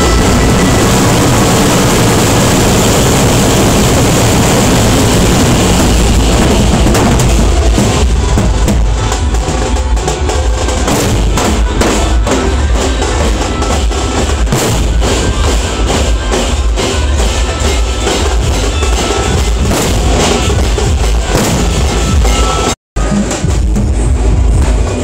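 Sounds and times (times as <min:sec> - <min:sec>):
barrel drums beaten with sticks: 0:05.0 - 0:25.0.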